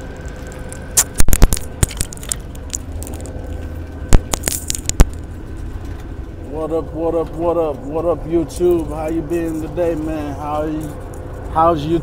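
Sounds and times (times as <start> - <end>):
truck cab low drone: 0.0 - 12.0
sharp cracks and knocks: 0.3 - 6.1.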